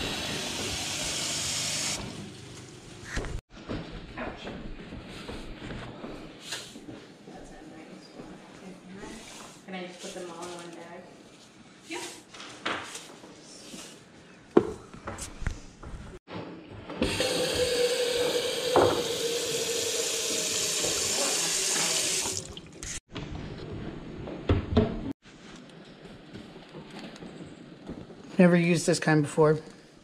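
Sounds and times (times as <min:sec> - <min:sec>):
faucet filling pot: 0:17.0 - 0:23.0.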